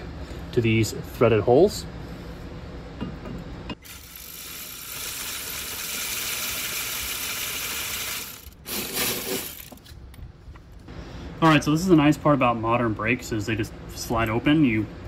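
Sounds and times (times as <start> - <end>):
metal clinking and scraping: 8.6 - 9.9.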